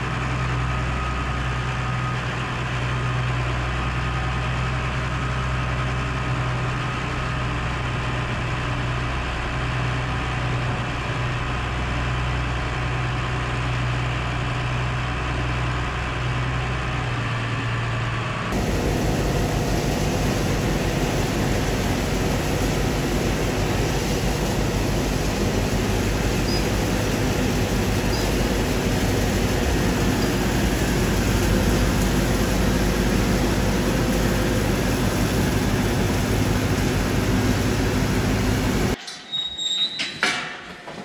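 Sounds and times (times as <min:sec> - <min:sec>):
tractor engine low hum: 0:00.0 - 0:39.0
bale processor shredding straw: 0:18.5 - 0:39.0.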